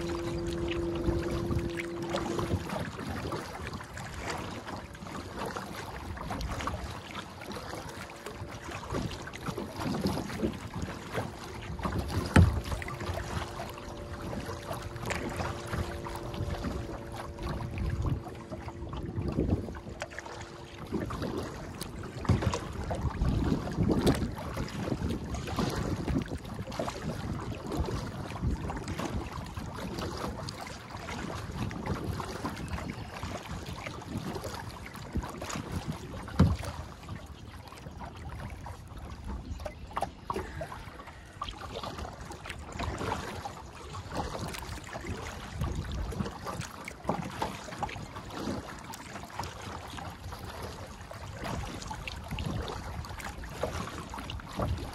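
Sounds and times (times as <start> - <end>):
paddle splashes: 0.0 - 54.9
water lapping around kayak: 0.0 - 54.9.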